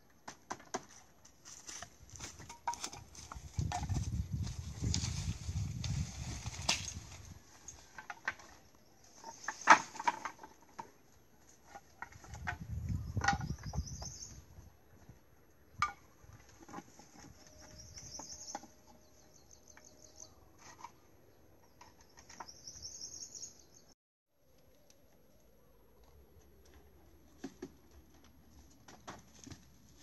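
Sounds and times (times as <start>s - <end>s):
bamboo poles knocking: 2.2s - 4.1s, 9.2s - 11.0s, 11.6s - 13.8s, 15.8s - 17.3s.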